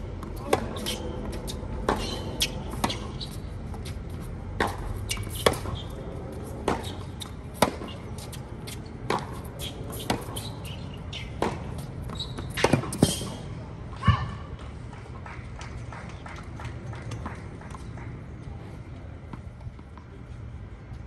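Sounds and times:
tennis ball bouncing on court: 0.1s - 13.3s
tennis ball struck by racket: 4.6s - 11.9s, 12.5s - 13.3s.

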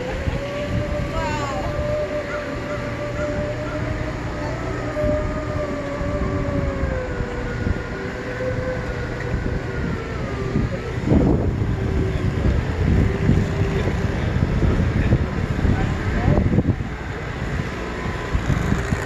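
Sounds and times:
electric motors whining: 0.0s - 19.0s.

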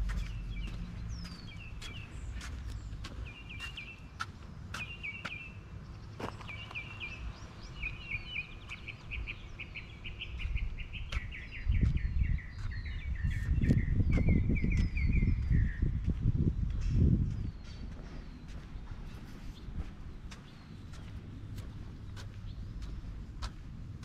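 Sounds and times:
low rumble: 0.0s - 3.5s
songbird chirping and trilling: 0.0s - 23.7s
outdoor background noise: 0.0s - 24.0s.

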